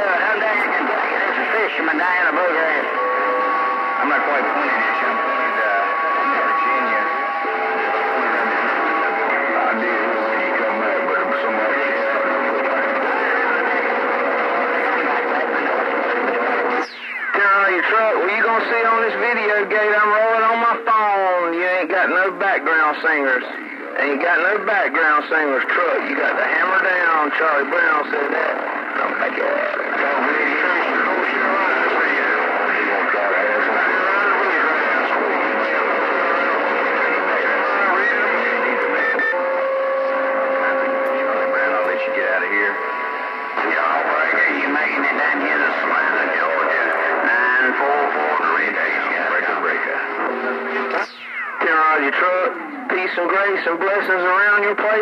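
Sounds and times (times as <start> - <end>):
radio static hiss: 0.0 - 55.0.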